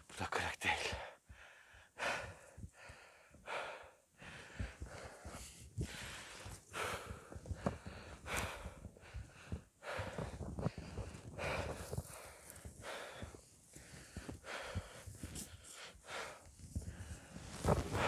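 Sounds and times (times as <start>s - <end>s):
heavy rasping breathing: 0.9s - 18.0s.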